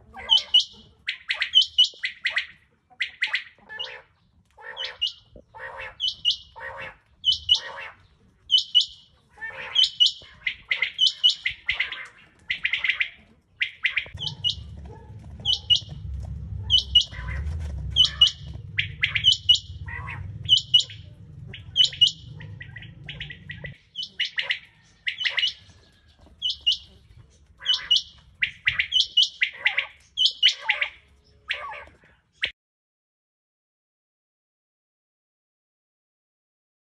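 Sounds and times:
quail calling: 0.0s - 32.5s
low steady hum: 14.2s - 23.8s.

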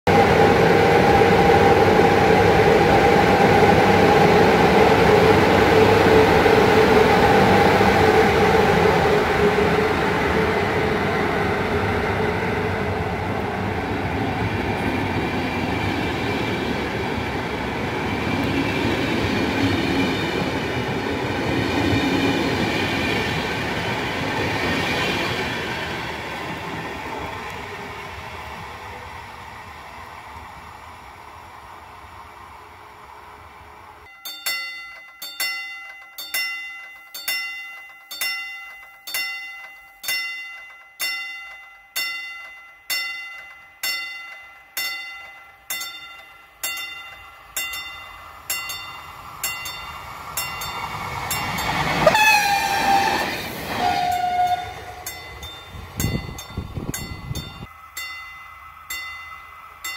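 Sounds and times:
electric locomotive whine: 0.1s - 59.9s
train wheels clattering on rails: 34.0s - 58.3s.

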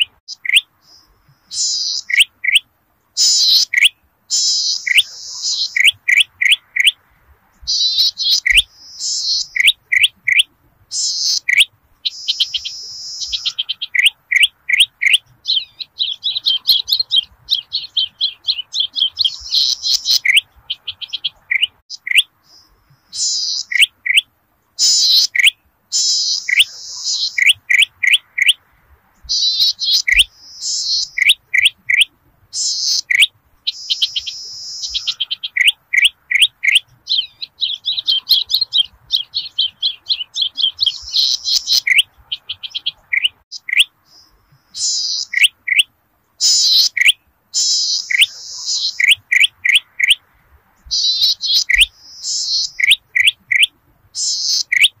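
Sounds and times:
bird song ticking and trills: 0.0s - 55.0s.

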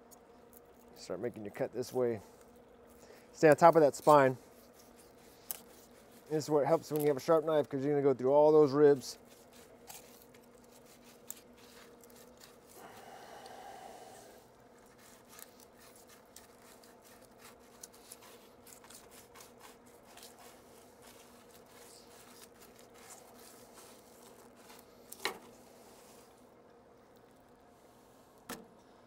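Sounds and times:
knife crunching through fish bones: 4.6s - 6.3s, 9.2s - 12.8s, 14.7s - 25.3s.

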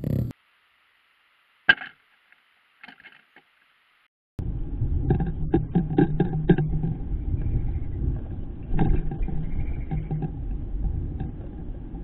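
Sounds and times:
wind rumble on microphone: 4.4s - 12.0s.

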